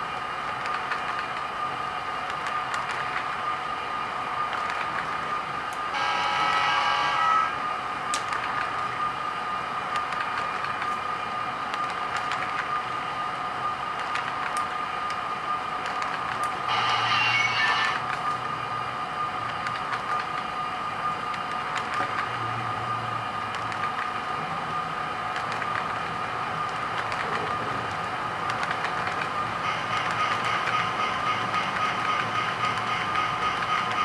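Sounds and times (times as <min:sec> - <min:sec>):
wheels clicking on rails: 0:00.0 - 0:03.6, 0:04.3 - 0:05.9, 0:08.1 - 0:09.1, 0:09.8 - 0:11.1, 0:11.7 - 0:12.9, 0:13.9 - 0:18.6, 0:19.3 - 0:20.5, 0:21.3 - 0:22.6, 0:23.4 - 0:24.5, 0:25.2 - 0:34.0
model train rolling past: 0:15.9 - 0:18.3.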